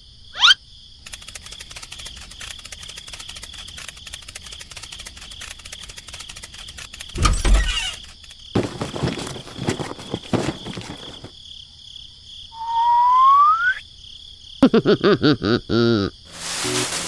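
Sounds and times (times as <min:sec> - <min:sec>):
rising whistle: 0:12.6 - 0:13.8.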